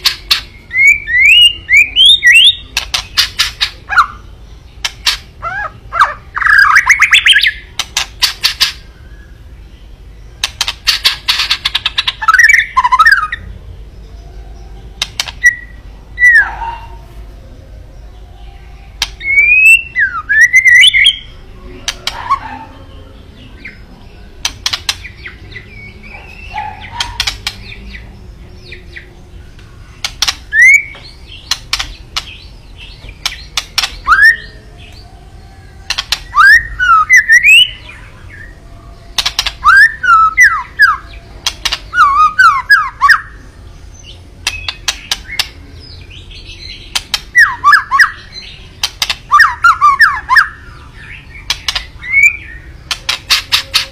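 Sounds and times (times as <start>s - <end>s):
bird singing whistled notes: 0.0s - 17.0s, 18.0s - 53.9s
sharp rattling clicks: 24.4s - 25.1s, 27.0s - 27.6s, 31.4s - 32.4s, 39.2s - 39.6s, 48.8s - 49.3s, 51.5s - 51.9s.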